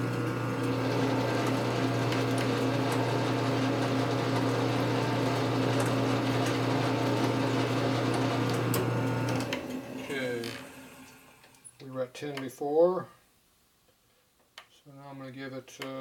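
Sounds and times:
lathe motor humming: 0:00.0 - 0:11.6.

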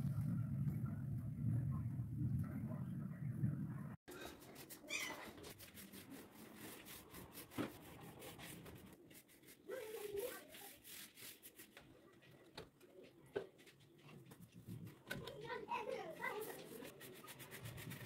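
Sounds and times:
paintbrush strokes on wood: 0:04.1 - 0:12.4, 0:13.0 - 0:18.0.

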